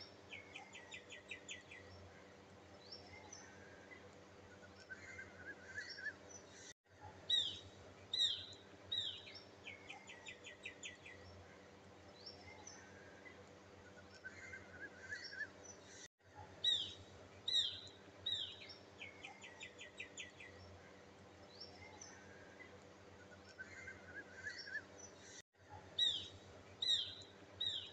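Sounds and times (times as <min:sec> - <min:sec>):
faint steady hum: 0:00.0 - 0:27.9
birds chirping and calling: 0:21.6 - 0:25.4, 0:26.0 - 0:27.9.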